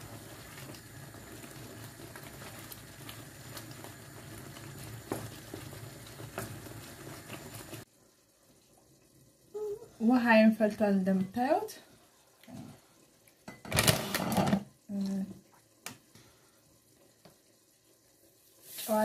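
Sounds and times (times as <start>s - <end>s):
wooden spoon stirring: 0.0s - 7.9s
sauce simmering and bubbling: 0.0s - 18.8s.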